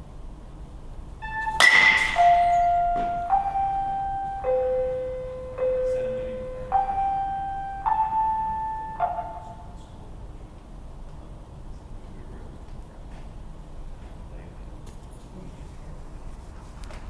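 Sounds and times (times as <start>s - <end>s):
sharp crack: 1.5s - 2.5s
bell-like chime melody: 2.2s - 9.5s.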